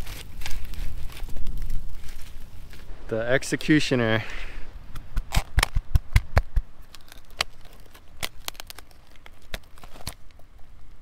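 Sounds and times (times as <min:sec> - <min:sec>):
knife cracking lobster shell: 0:05.2 - 0:10.4.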